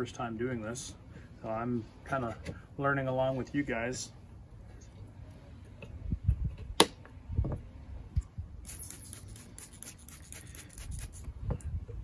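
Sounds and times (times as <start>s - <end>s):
spray bottle squirting: 8.6s - 11.4s.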